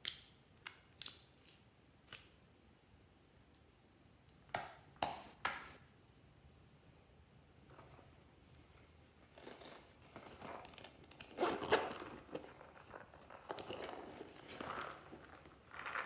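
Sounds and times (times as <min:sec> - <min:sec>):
pouch rustling: 0:09.4 - 0:16.0
zipper pulled open: 0:11.2 - 0:12.1.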